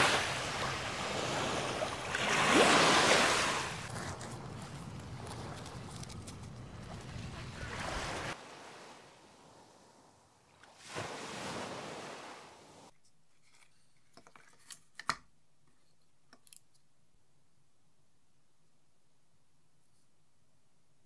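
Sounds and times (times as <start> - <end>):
wind noise: 0.0 - 8.4
surf: 0.0 - 12.9
wave washing on shore: 0.0 - 12.9.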